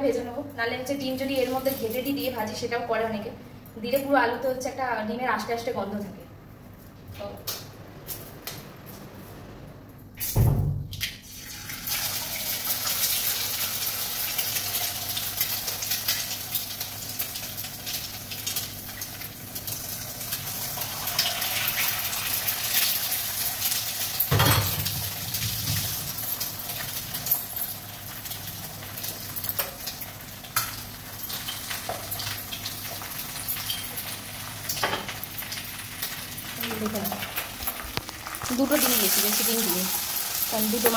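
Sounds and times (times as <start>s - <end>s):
hot oil sizzling: 10.2s - 40.9s.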